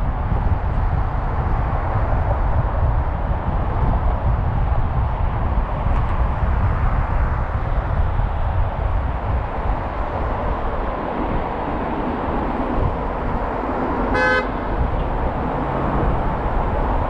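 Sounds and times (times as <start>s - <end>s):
car road and tyre noise: 0.0s - 17.0s
car horn toot: 14.1s - 14.7s.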